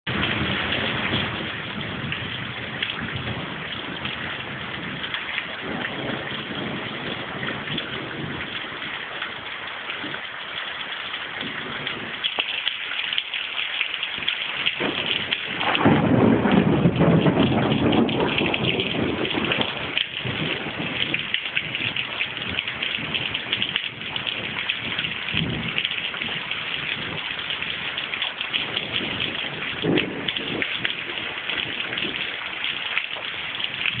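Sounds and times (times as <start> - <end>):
heavy rain pouring: 0.1 - 34.0
low rumble: 14.8 - 21.3.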